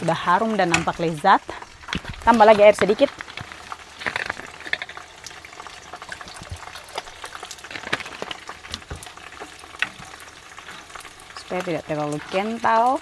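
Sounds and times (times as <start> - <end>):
chicken sizzling in hot oil: 0.0 - 13.0
small crackles and pops: 0.0 - 13.0.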